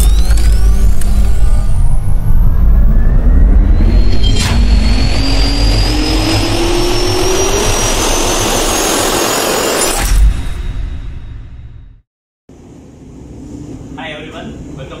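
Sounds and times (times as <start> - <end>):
jet turbine whine rising: 0.0 - 11.7
sharp hit: 0.0 - 12.0.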